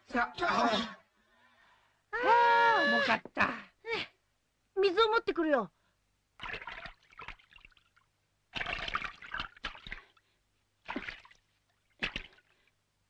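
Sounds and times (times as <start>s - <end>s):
water pouring and splashing: 6.4s - 10.2s, 10.8s - 12.7s.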